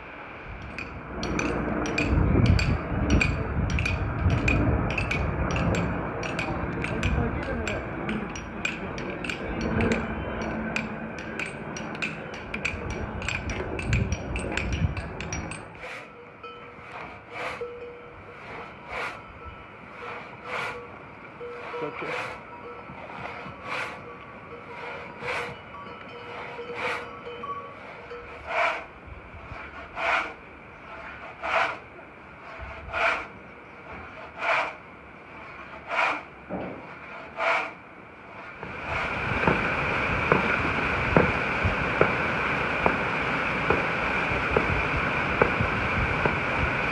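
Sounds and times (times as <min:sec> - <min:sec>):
mountain stream rushing: 0:00.0 - 0:46.9
metallic taps of tools on stone: 0:00.6 - 0:15.7
sharp ticks: 0:00.6 - 0:15.7
pit saw rasping through log: 0:15.8 - 0:16.1, 0:16.8 - 0:17.7, 0:18.3 - 0:19.2, 0:19.9 - 0:20.9, 0:21.5 - 0:24.0, 0:24.7 - 0:25.6, 0:26.2 - 0:27.1, 0:27.8 - 0:31.8, 0:32.4 - 0:39.7.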